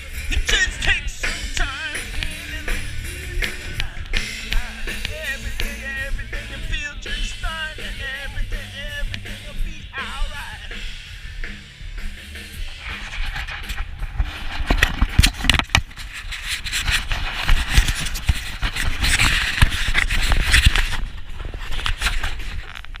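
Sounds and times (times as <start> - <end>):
camera handling rubbing and knocking: 12.8 - 23.0.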